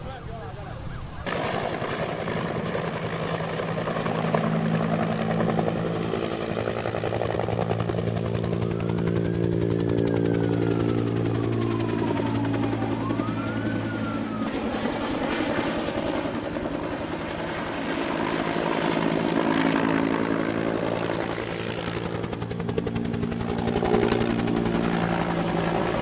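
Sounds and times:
helicopter beating drone: 0:00.0 - 0:26.0
siren wailing: 0:04.1 - 0:16.3.

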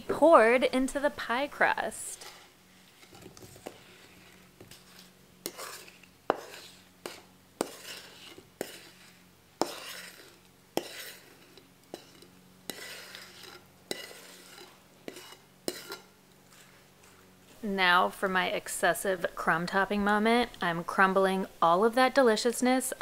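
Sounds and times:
utensil scraping mixing bowl: 0:01.2 - 0:17.6.

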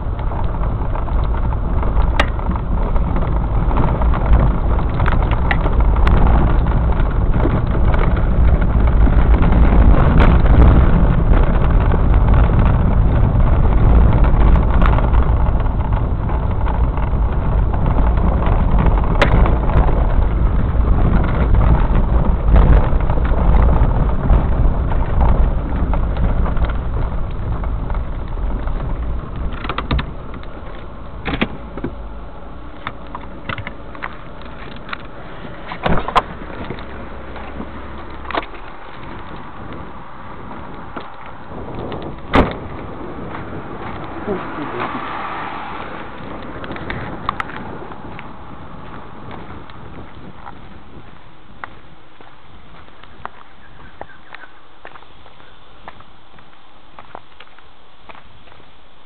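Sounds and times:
car tyres and engine rumble: 0:00.0 - 0:59.0
knocks and clicks: 0:00.1 - 0:44.3.

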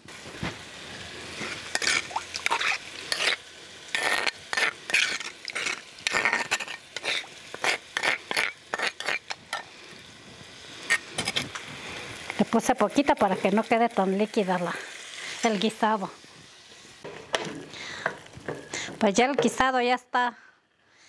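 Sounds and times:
metal spoon scraping stone bowl: 0:01.5 - 0:09.7.

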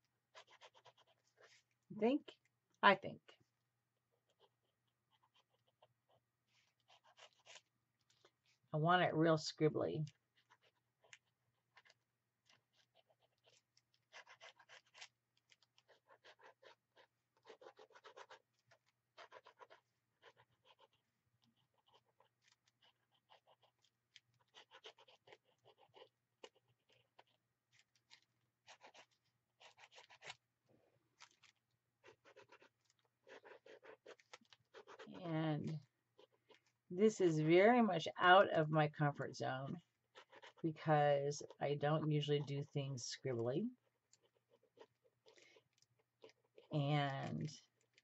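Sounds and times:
pen scribbling on paper: 0:00.3 - 0:01.7, 0:04.3 - 0:07.7, 0:10.2 - 0:27.4, 0:28.0 - 0:30.4, 0:32.0 - 0:36.7, 0:39.4 - 0:42.6.

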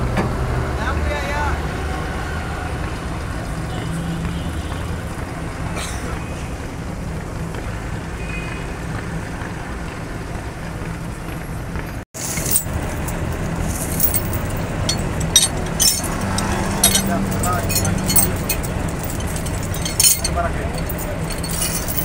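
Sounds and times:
steel chains clinking and rattling: 0:12.2 - 0:22.0.

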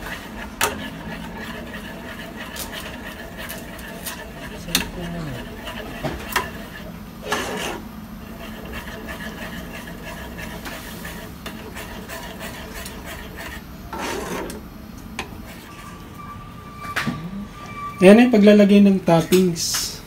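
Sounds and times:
spoon scraping a saucepan: 0:00.0 - 0:14.6.

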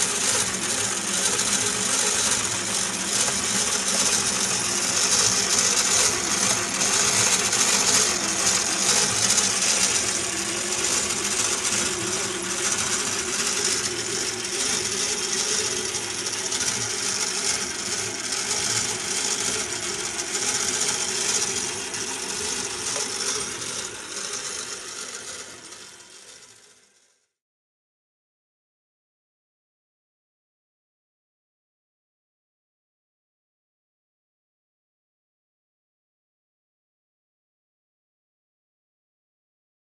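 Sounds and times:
small electric motor humming: 0:00.0 - 0:27.2.

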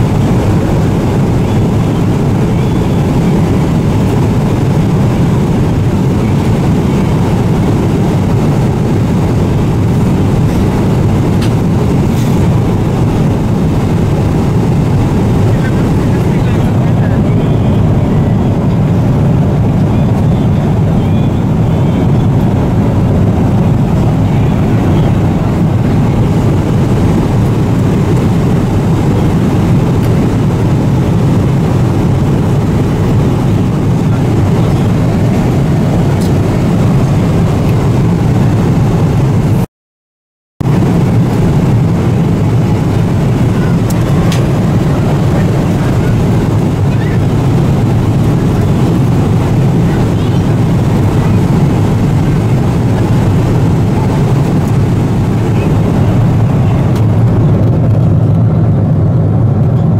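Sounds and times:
airplane cabin rumble: 0:00.0 - 0:39.7, 0:40.6 - 0:59.9.

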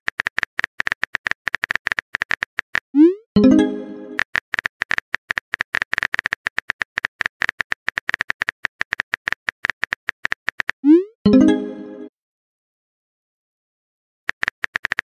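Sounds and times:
keyboard typing clicks: 0:14.3 - 0:15.0.

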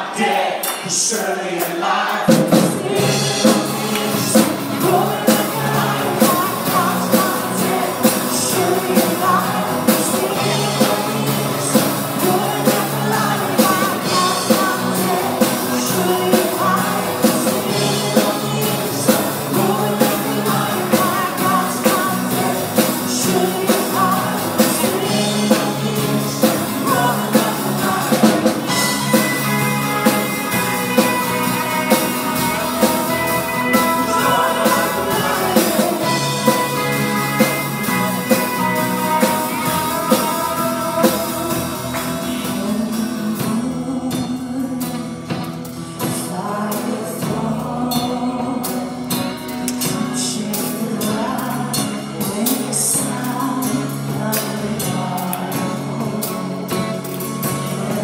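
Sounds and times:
backing voices singing along: 0:00.0 - 0:45.0, 0:46.0 - 0:49.1
woman singing lead: 0:00.0 - 0:45.4
drum kit: 0:00.0 - 0:58.0
electric and acoustic guitars: 0:01.9 - 0:58.0.

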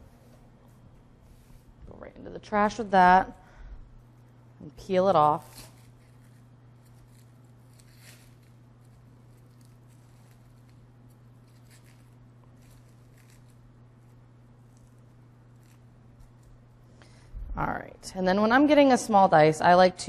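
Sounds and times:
low hum: 0:00.0 - 0:20.0
onion skin crackling: 0:04.0 - 0:16.9.

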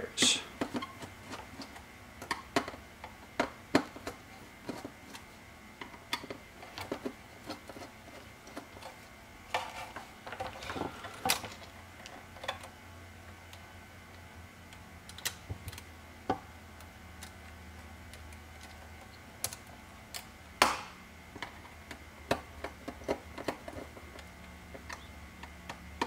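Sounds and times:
small scraping noises: 0:00.3 - 0:01.9, 0:03.9 - 0:12.7.

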